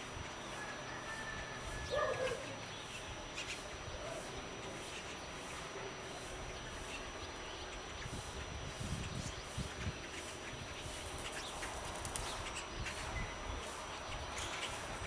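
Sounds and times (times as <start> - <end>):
dog barking: 1.9 - 2.5.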